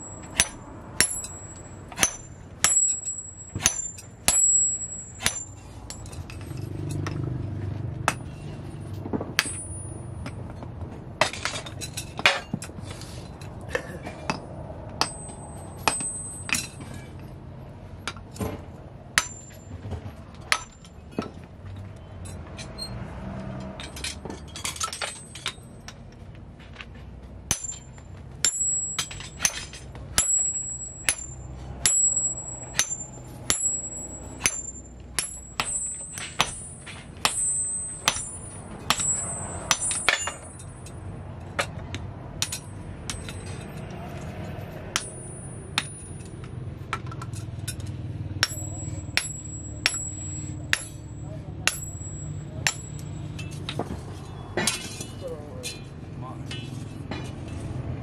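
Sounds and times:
hammer striking steel with ringing: 0.0 - 8.5, 14.3 - 17.1, 27.5 - 44.2, 44.9 - 46.3, 47.6 - 55.9.

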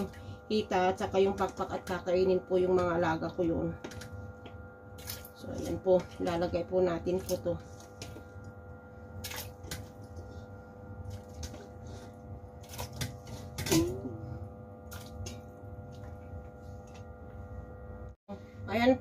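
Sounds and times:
electrical hum: 0.0 - 19.0
meat plopping and splashing: 5.0 - 6.4.

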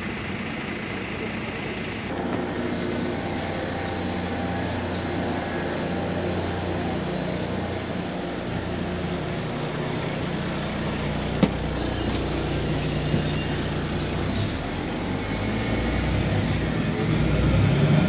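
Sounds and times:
bus engine hum: 0.0 - 18.0
thin high whine: 2.1 - 18.0.

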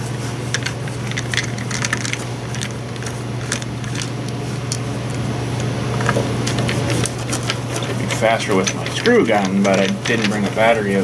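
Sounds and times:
steady low hum: 0.0 - 11.0
screwdriver clicking and scraping: 6.1 - 10.5.

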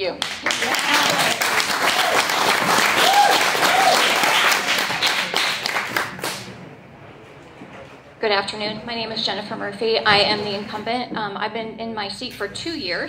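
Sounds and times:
audience clapping: 0.0 - 6.7.

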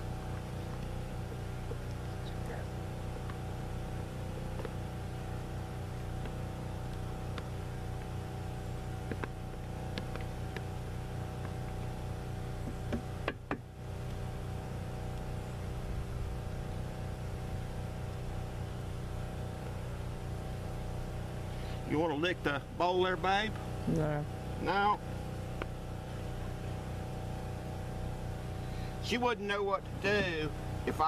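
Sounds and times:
motor drone with pitched hum: 0.0 - 31.0.

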